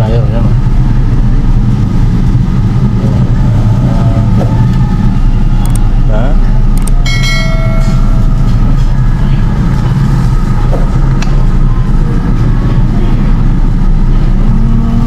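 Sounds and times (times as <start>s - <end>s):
loud low rumble: 0.0s - 15.0s
short ringing tone: 7.0s - 8.5s.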